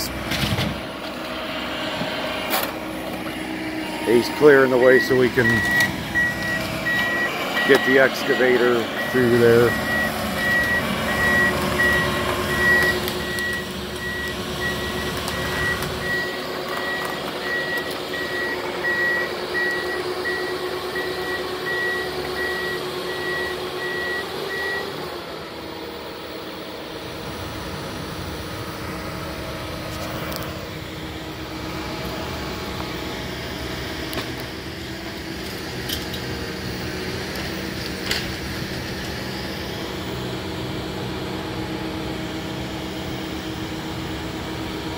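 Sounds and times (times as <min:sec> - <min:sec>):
construction machine engine: 0:00.0 - 0:44.9
reversing alarm beeps: 0:04.2 - 0:25.0.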